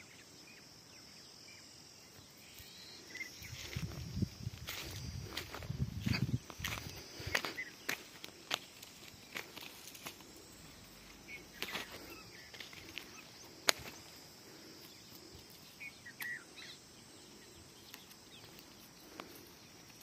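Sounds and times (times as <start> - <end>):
footsteps and scuffs: 3.4 - 15.6.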